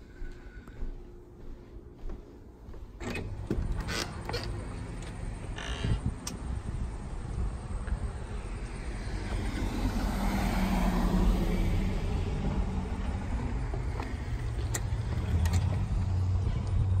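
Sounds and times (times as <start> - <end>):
low outdoor rumble: 0.0 - 17.0
car passing: 6.8 - 17.0.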